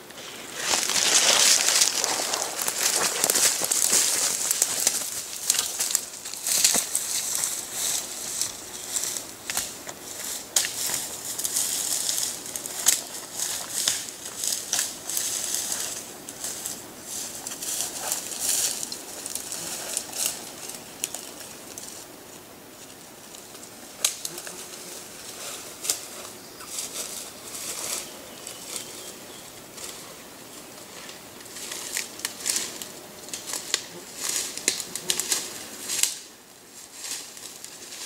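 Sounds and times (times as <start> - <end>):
dry leaves rustling: 0.0 - 38.0
twigs snapping: 0.6 - 16.8, 24.0 - 24.8, 31.4 - 36.3.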